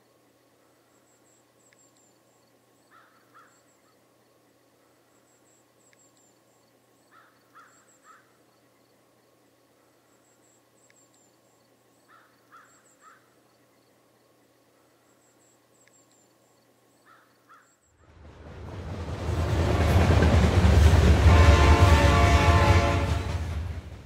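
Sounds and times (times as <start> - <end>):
faint chirps: 0.0 - 18.0.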